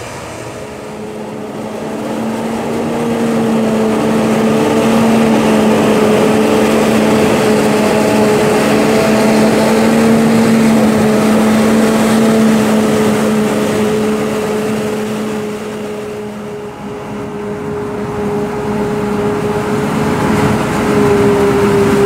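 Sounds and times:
forage harvester droning: 0.0s - 22.0s
tractor diesel engine: 0.0s - 22.0s.

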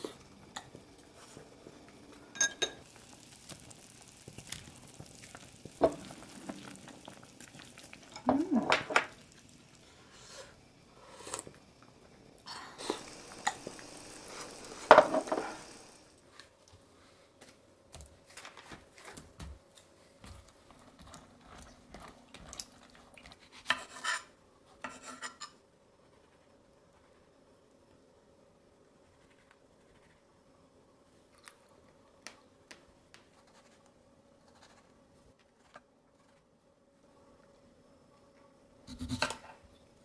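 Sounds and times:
broth hissing on burner: 0.0s - 16.2s
faint steady hum: 0.0s - 40.0s
utensils clinking against pot: 2.3s - 2.8s
dishes clicking and knocking: 2.4s - 2.8s, 14.8s - 15.6s.

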